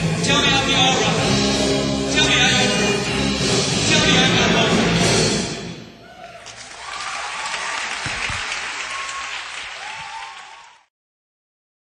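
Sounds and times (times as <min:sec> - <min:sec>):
audience applauding and cheering: 0:06.0 - 0:10.9.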